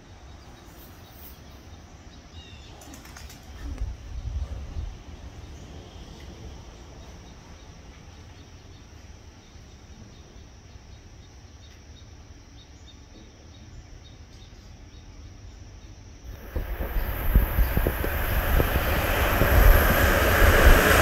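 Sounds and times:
insect chirps: 0.0s - 21.0s
low steady rumble: 15.4s - 21.0s
train rumble: 16.3s - 21.0s.

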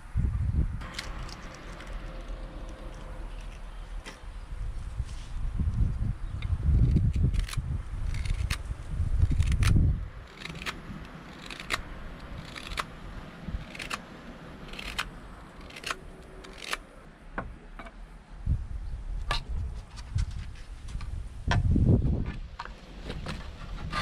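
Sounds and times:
knife scraping wood: 0.8s - 4.4s, 6.8s - 12.9s, 13.5s - 17.0s.

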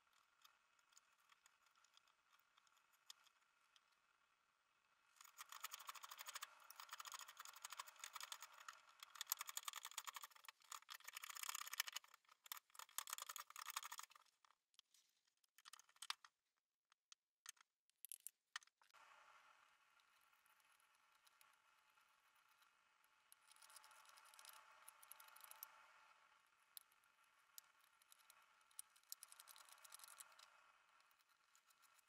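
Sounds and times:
scattered clicks: 5.2s - 19.0s, 23.3s - 25.7s, 26.8s - 32.0s.

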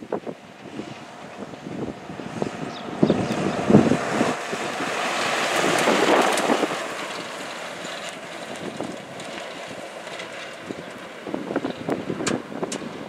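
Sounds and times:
truck engine: 0.0s - 13.0s
tyres on gravel: 2.8s - 13.0s.

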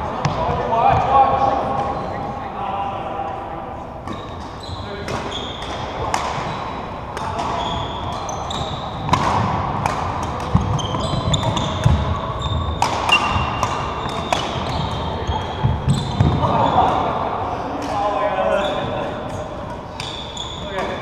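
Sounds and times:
rackets striking shuttlecock: 4.0s - 12.1s, 12.7s - 16.5s
sneaker squeaks: 4.0s - 17.0s, 18.5s - 21.0s.

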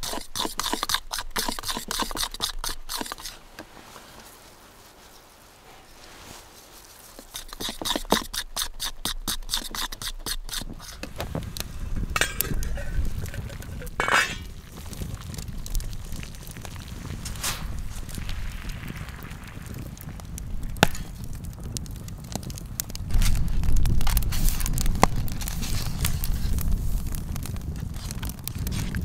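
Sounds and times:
eggs beaten in a bowl: 0.0s - 3.4s, 7.2s - 11.0s
water boiling under pot: 0.0s - 4.0s, 7.2s - 29.0s
open fire rumbling: 0.0s - 29.0s
metal pot lid clatter: 12.2s - 14.5s.

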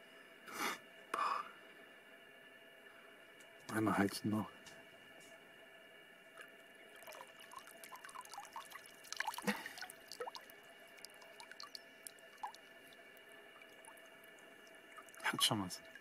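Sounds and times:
water dripping into water: 6.4s - 16.0s.

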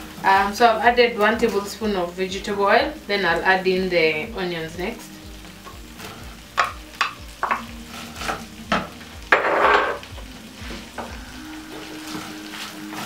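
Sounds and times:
food sizzling in hot oil: 0.0s - 13.0s
wooden spoon scraping a pan: 6.0s - 13.0s.

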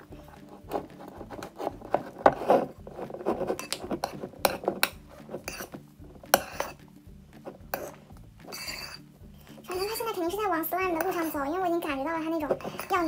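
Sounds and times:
metal spoon scraping ceramic bowl: 0.2s - 6.8s, 7.4s - 10.1s, 10.8s - 11.4s, 12.4s - 13.0s.

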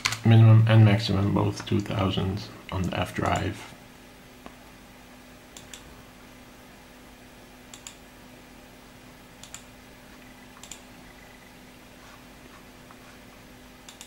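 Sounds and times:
faint steady hum: 0.0s - 14.0s
computer mouse clicks: 2.8s - 3.5s, 5.6s - 5.9s, 7.7s - 8.0s, 9.4s - 11.5s.

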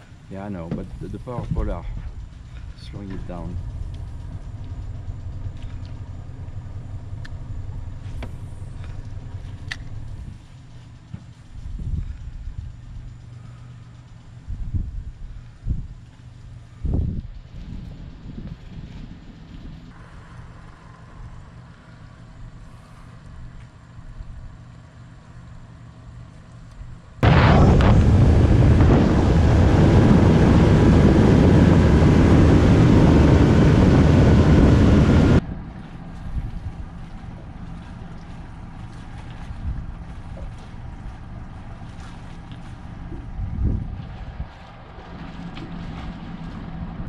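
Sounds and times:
boat engine idling: 0.0s - 26.5s, 27.2s - 47.0s
faint steady hum: 0.0s - 47.0s
faint clicks: 8.2s - 14.5s.

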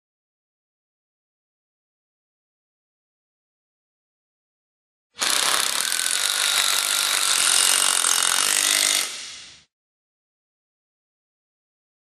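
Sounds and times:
cordless driver driving screw: 5.2s - 9.4s.

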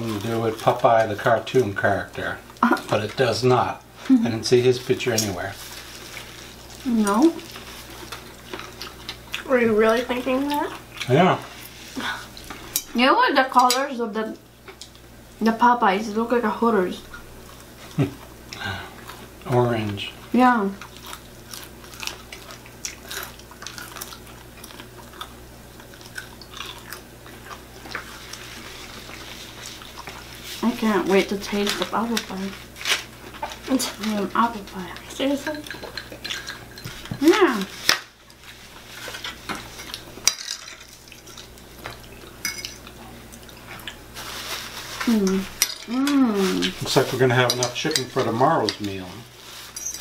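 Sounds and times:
people chewing crispy chicken: 4.8s - 12.7s, 17.4s - 30.7s, 40.9s - 47.2s
forks clinking on plates: 42.4s - 42.9s, 47.3s - 48.9s, 49.7s - 50.0s.

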